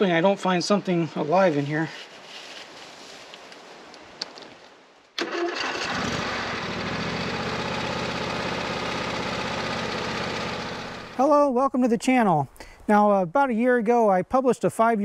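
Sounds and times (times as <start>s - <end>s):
tractor engine starting and running: 5.2s - 11.2s.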